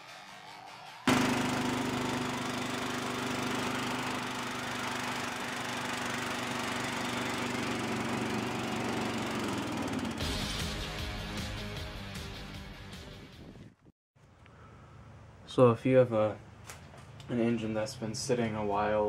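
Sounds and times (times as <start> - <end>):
riding lawn mower engine running: 1.1 - 10.4.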